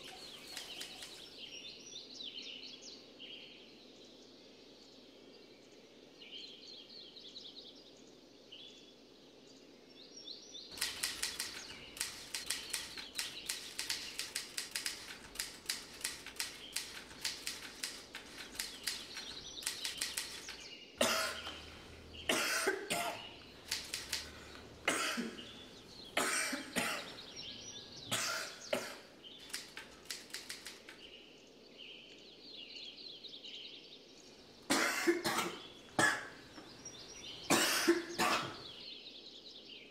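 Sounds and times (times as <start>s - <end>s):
typewriter keys clacking: 0.0s - 1.3s, 10.7s - 31.1s
faint bird chirps: 0.0s - 39.9s.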